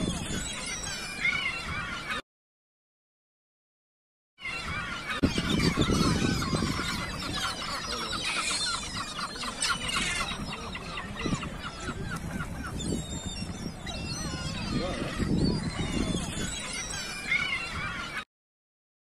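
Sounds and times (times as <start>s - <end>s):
birds calling: 0.0s - 2.2s, 4.4s - 18.2s.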